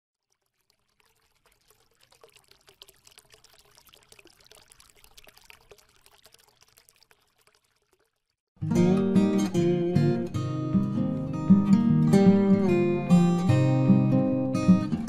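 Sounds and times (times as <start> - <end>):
faint crackling trickling: 0.1 - 8.5.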